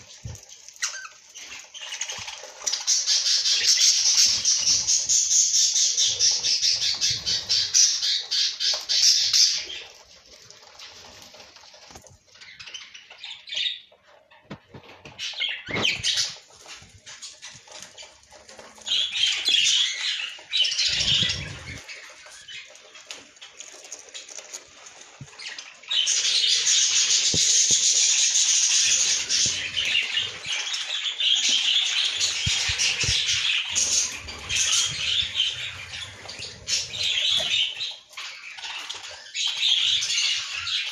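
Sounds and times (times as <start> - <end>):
budgerigars squawking chatter: 18.9 - 22.7, 26.0 - 40.9.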